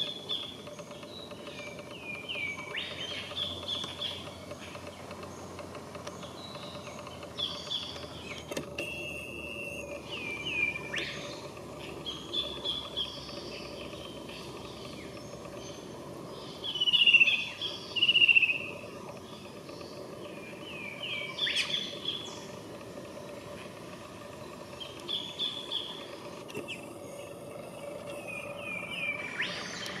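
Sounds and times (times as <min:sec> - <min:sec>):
steady background hum: 0:00.0 - 0:30.0
bird chattering calls: 0:10.0 - 0:18.8, 0:20.2 - 0:22.5.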